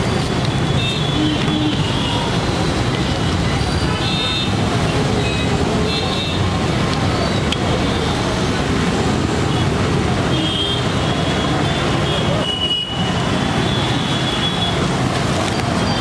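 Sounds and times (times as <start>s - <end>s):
street traffic hum: 0.0s - 16.0s.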